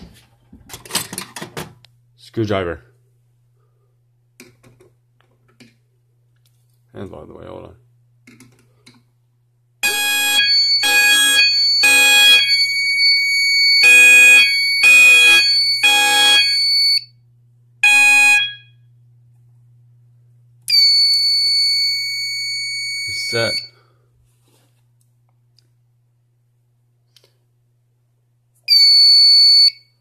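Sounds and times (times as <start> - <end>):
fire alarm horns pulsing: 9.8 - 17.1, 17.8 - 18.7, 20.7 - 23.8.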